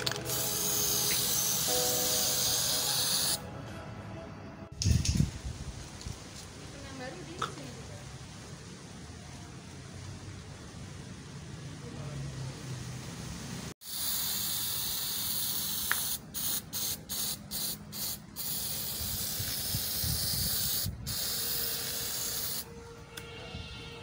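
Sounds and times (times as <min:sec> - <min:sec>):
spray paint can hissing: 0:00.0 - 0:03.4, 0:13.8 - 0:22.7.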